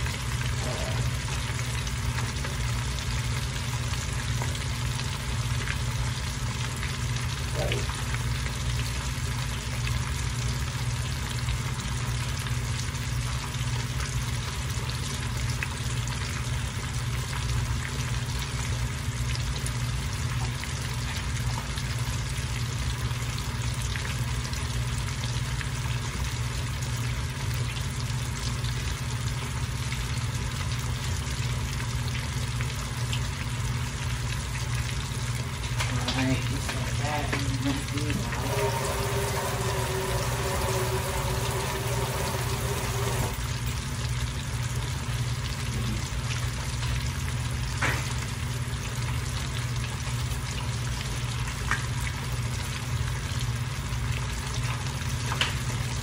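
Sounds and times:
steady low hum: 0.0 - 12.5, 30.8 - 46.8
ribs sizzling in oil: 0.0 - 56.0.

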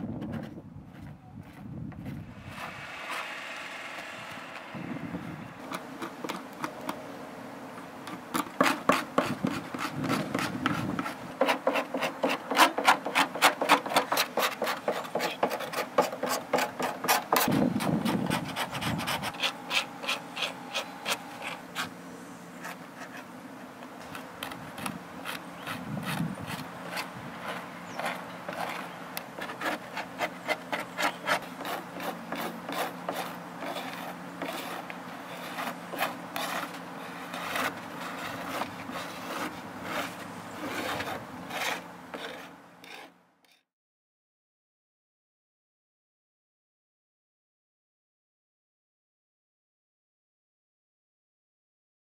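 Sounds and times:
hand tool scraping over paper: 8.1 - 22.0, 22.6 - 43.6.

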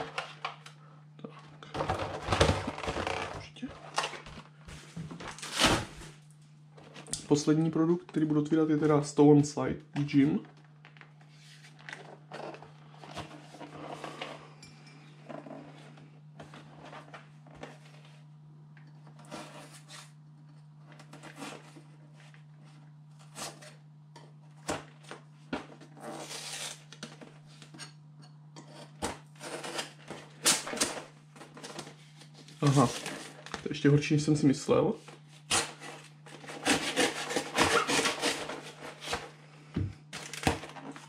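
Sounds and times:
steady low hum: 0.0 - 41.0
packaging rustling and scraping: 1.4 - 6.2, 10.1 - 18.3, 19.1 - 23.8, 24.6 - 27.8, 28.7 - 33.7, 35.0 - 39.4, 40.1 - 41.0.

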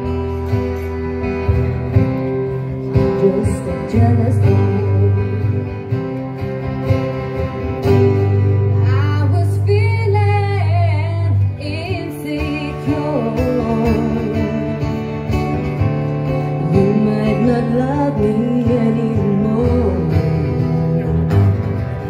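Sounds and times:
acoustic guitars playing chords: 0.0 - 22.0
woman singing: 2.8 - 5.8, 8.6 - 15.3, 16.4 - 21.6.

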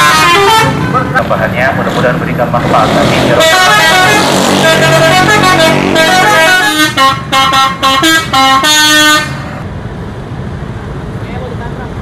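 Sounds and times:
musical bus air horn: 0.0 - 0.8, 3.3 - 9.6.

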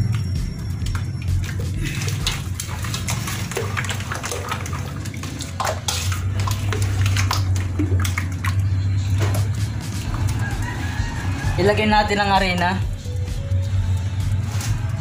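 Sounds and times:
hand splashing water in bowl: 0.9 - 10.6.

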